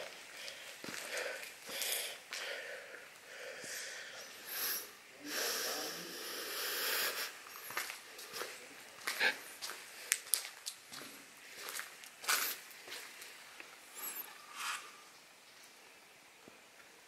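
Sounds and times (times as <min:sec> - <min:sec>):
footsteps crunching on gritty concrete: 0:00.0 - 0:02.5, 0:07.6 - 0:13.4
breathing close to microphone: 0:00.3 - 0:07.7.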